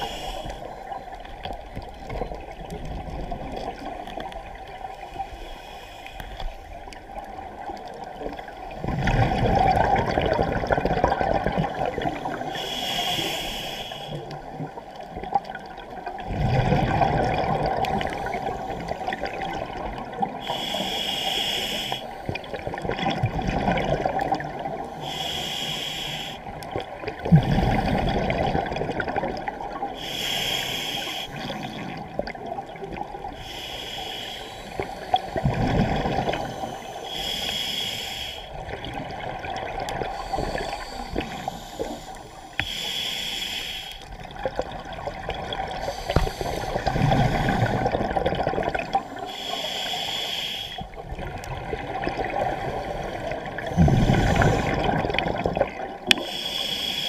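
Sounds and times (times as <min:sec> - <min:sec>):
regulator breathing hiss: 0:00.0 - 0:00.7, 0:05.1 - 0:06.6, 0:12.2 - 0:14.4, 0:20.4 - 0:22.3, 0:24.9 - 0:26.5, 0:29.9 - 0:31.8, 0:33.3 - 0:35.4, 0:36.3 - 0:38.6, 0:40.1 - 0:44.1, 0:45.7 - 0:47.8, 0:49.0 - 0:51.0, 0:53.8 - 0:54.8, 0:56.2 - 0:57.0
exhale bubbling underwater: 0:06.7 - 0:21.4, 0:22.2 - 0:25.3, 0:26.2 - 0:57.0.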